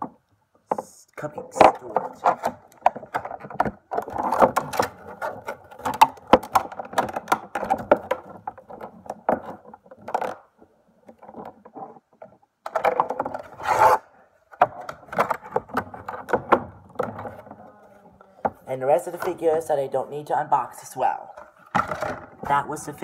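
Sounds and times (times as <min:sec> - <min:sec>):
plastic toys clicking: 0:00.7 - 0:11.6.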